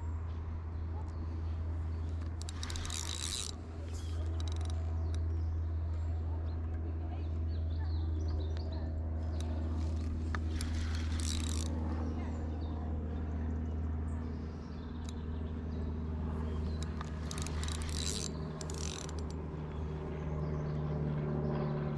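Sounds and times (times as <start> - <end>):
fishing rod and reel handling: 1.9 - 5.5, 9.3 - 11.8, 16.5 - 19.4.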